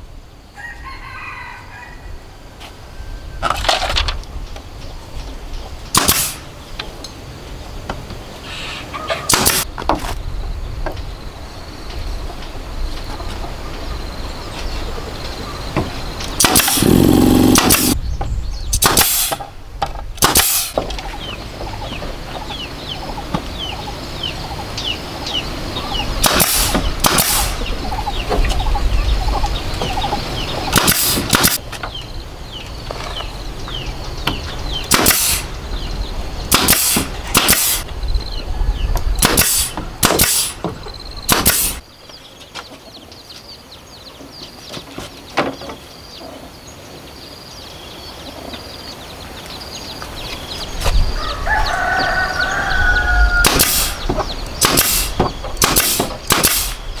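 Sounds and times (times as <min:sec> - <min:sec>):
birds chirping: 0:04.3 - 0:57.0
pneumatic nailer firing: 0:05.9 - 0:06.5, 0:09.3 - 0:09.7, 0:16.4 - 0:18.0, 0:18.8 - 0:19.5, 0:20.2 - 0:20.8, 0:26.2 - 0:27.7, 0:30.7 - 0:31.6, 0:34.9 - 0:35.5, 0:36.5 - 0:37.8, 0:39.2 - 0:41.8, 0:53.4 - 0:54.0, 0:54.6 - 0:56.9
steady low hum: 0:16.4 - 0:18.2.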